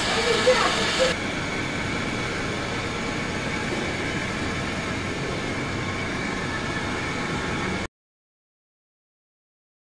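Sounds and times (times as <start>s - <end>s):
machine humming with high whine: 0.0s - 7.9s.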